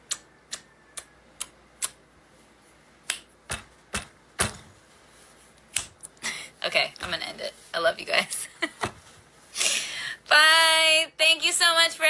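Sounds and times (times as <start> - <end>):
person making sharp clicks: 0.0 - 2.0, 3.0 - 4.1, 5.7 - 6.2.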